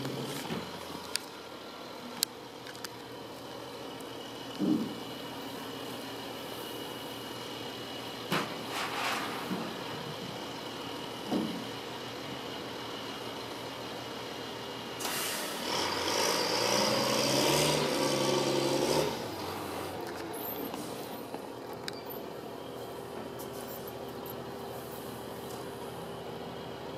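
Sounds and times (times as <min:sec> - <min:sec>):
truck diesel engine: 0:00.0 - 0:26.9
air brakes hissing: 0:15.0 - 0:15.7.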